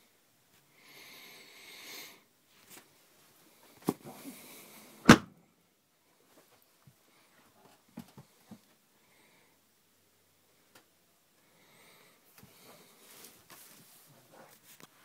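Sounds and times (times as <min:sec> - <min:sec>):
wooden cabinet panel banging shut: 0:05.1 - 0:05.3
rustling handling noise: 0:12.4 - 0:15.0.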